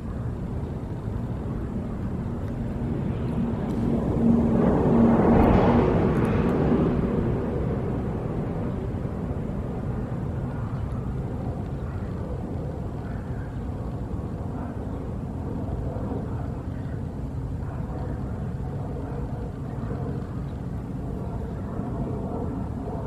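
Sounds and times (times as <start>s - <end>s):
distant engines rumbling: 0.0s - 23.0s
faint hum: 0.0s - 23.0s.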